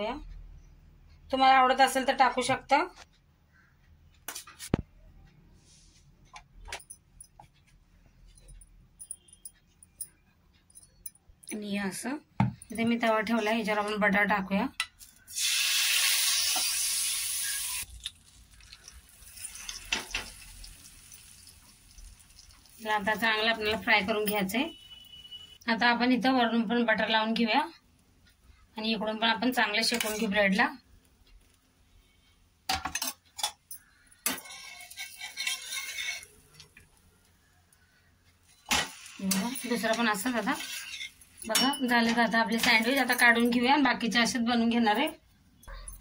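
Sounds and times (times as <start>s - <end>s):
utensils clicking on griddle: 14.9s - 21.8s, 33.0s - 36.9s, 38.6s - 43.2s
butter sizzling on a hot pan: 15.2s - 24.3s, 34.4s - 36.5s, 38.6s - 41.4s
spatula scraping griddle: 34.3s - 36.6s, 38.6s - 41.4s.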